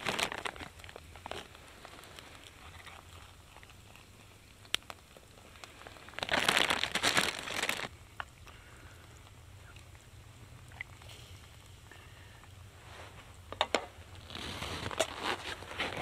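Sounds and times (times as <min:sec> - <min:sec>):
plastic bag crinkling: 0:00.0 - 0:07.9, 0:14.1 - 0:16.0.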